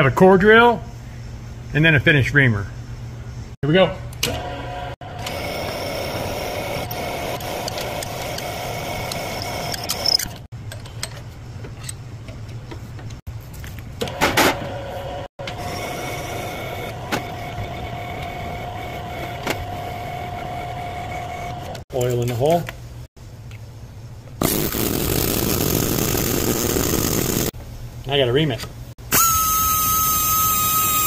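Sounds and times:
spindle motor whining: 0:04.2 - 0:10.5, 0:14.7 - 0:21.8, 0:29.1 - 0:31.0.

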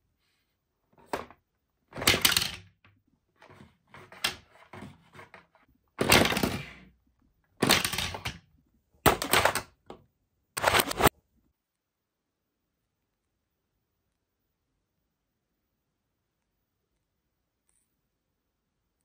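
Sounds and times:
plastic toy parts clattering: 0:01.0 - 0:06.9, 0:07.6 - 0:08.5, 0:09.1 - 0:09.9, 0:10.6 - 0:11.1.

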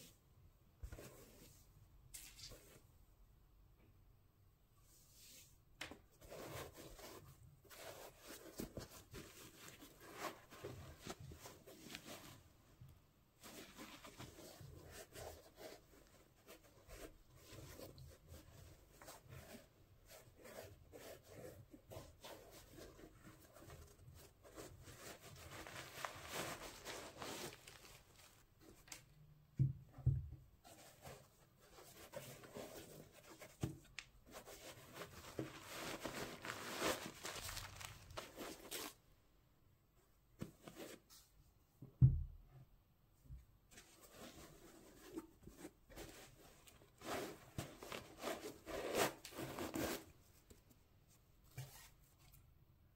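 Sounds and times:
gloved hands rustling on sneakers: 0:34.8 - 0:39.0.

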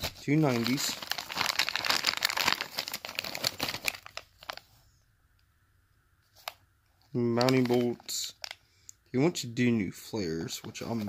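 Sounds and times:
plastic bag crinkling: 0:00.0 - 0:04.7, 0:07.2 - 0:08.6.

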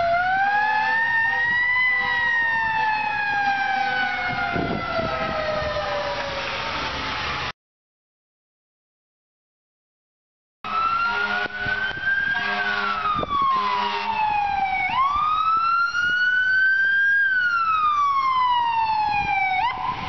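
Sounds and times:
ambulance siren wailing: 0:00.0 - 0:07.5, 0:10.6 - 0:20.0.

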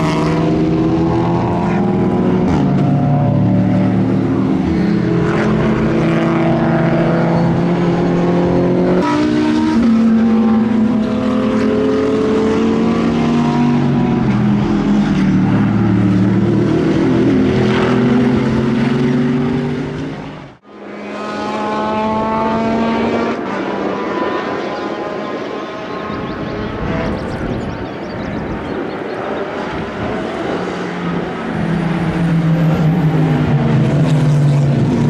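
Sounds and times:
race car engines revving: 0:00.0 - 0:35.0.

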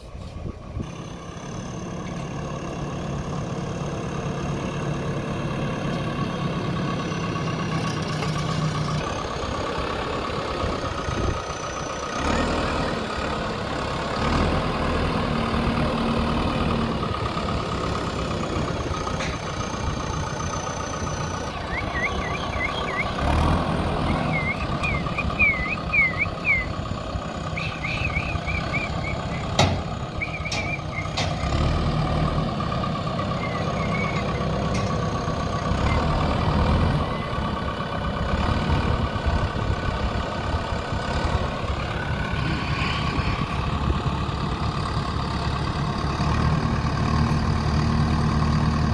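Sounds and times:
diesel engine running under load: 0:00.0 - 0:48.9
sharp knocks: 0:29.5 - 0:29.9.

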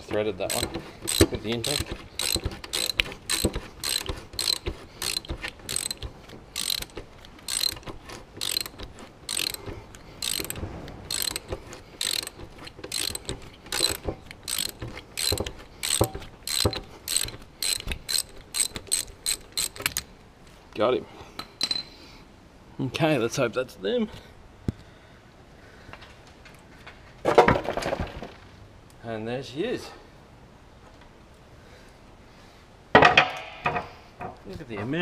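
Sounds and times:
socket ratchet clicking: 0:00.0 - 0:20.1.

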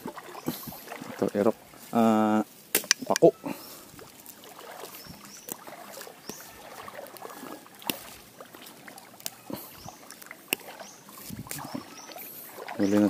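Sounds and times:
faint river water: 0:00.0 - 0:13.0
fern frond rustling: 0:00.0 - 0:13.0.

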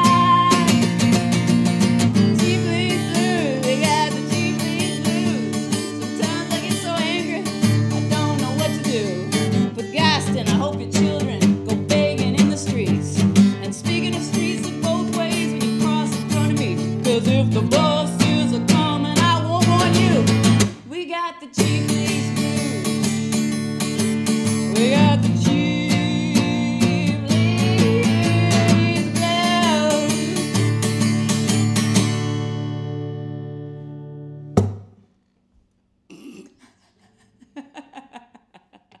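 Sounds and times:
strummed acoustic guitar: 0:00.0 - 0:20.9, 0:21.6 - 0:34.9
woman singing blues: 0:00.0 - 0:31.4
sharp knock: 0:34.6 - 0:35.0
faint laughter: 0:36.1 - 0:39.0.

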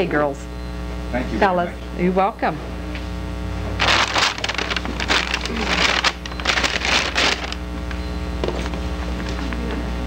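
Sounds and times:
electrical hum: 0:00.0 - 0:10.0
people rustling and shuffling: 0:03.8 - 0:07.6, 0:08.4 - 0:10.0.

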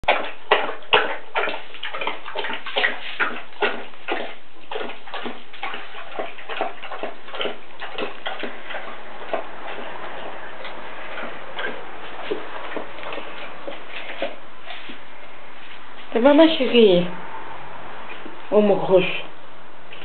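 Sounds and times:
dog lapping water: 0:00.0 - 0:15.4.

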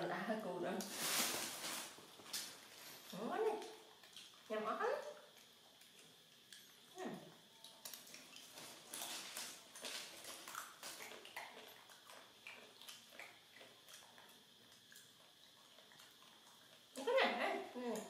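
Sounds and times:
plastic bag rustling: 0:00.7 - 0:03.1, 0:08.4 - 0:10.4.

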